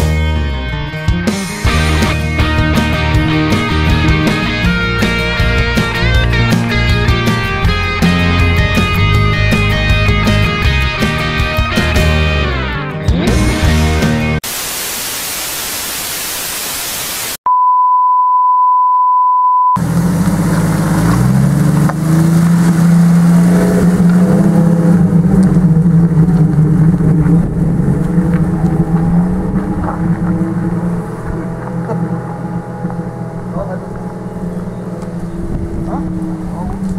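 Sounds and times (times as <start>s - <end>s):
white-noise static: 14.4s - 17.4s
test-tone beep: 17.5s - 19.8s
vehicle engine running under load: 19.8s - 36.9s.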